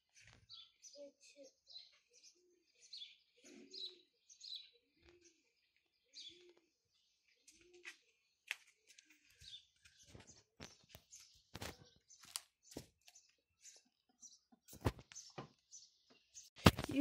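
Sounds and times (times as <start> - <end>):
small birds chirping: 0.0 - 17.0
dove cooing: 1.0 - 6.8.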